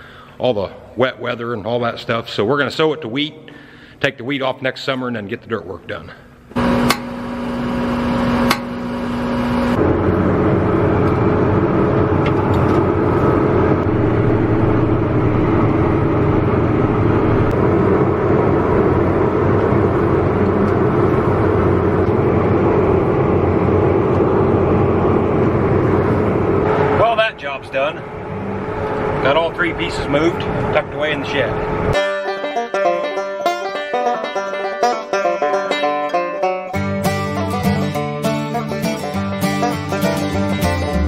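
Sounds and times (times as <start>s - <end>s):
tractor diesel engine running: 6.5s - 32.1s, 36.7s - 41.0s.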